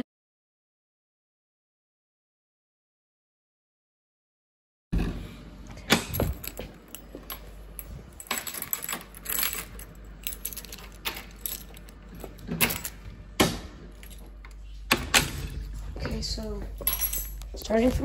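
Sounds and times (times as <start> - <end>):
keys jangling: 6.0 - 13.1, 13.9 - 14.6, 15.5 - 18.0.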